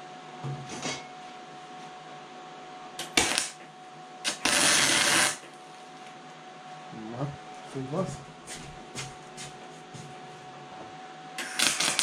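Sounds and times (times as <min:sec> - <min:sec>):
welding arc bursts: 0:03.0 - 0:03.6, 0:04.2 - 0:05.4, 0:11.4 - 0:12.0.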